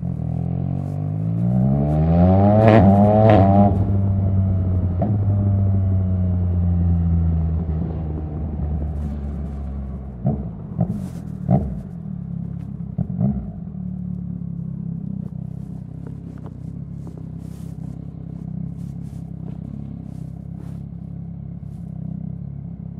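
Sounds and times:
motorcycle engine idling: 8.0 - 22.9
motorcycle exhaust pops: 8.8 - 22.2.

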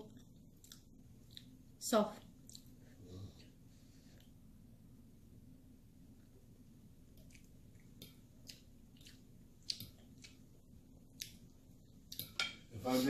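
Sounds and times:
chewing: 0.0 - 1.6, 2.2 - 3.5, 7.1 - 12.4
low steady hum: 0.0 - 13.0.

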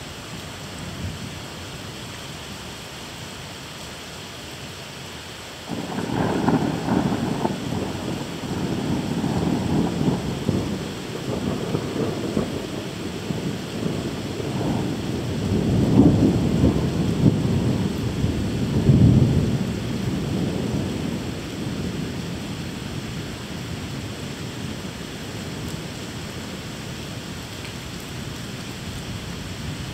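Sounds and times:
steady rain: 0.0 - 29.9
rolling thunder: 5.7 - 23.3.

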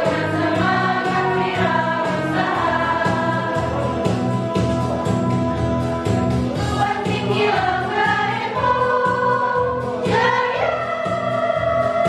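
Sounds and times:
women's choir singing: 0.0 - 3.8, 6.6 - 12.0
accompaniment with steady beat: 0.0 - 12.0.

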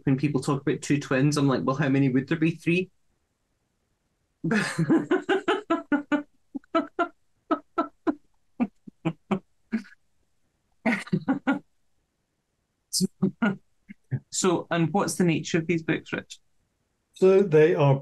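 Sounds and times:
woman laughing: 4.5 - 9.4, 10.9 - 11.6.

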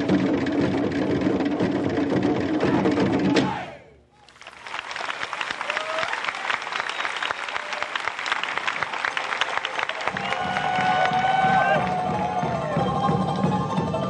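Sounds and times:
audience applause: 4.2 - 12.9
crowd shouts or whistles: 10.0 - 13.2.

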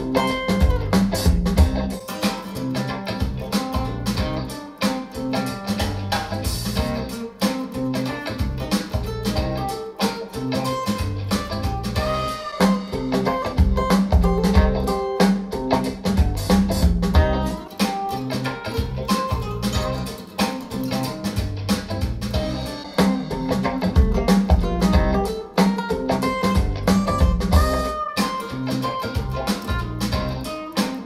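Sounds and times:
guitar music over loudspeakers: 0.0 - 31.0.

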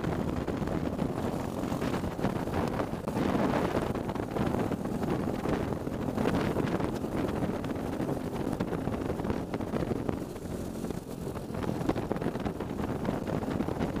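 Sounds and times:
kart engine running at speed: 0.0 - 14.0
wind buffeting microphone: 0.0 - 14.0.

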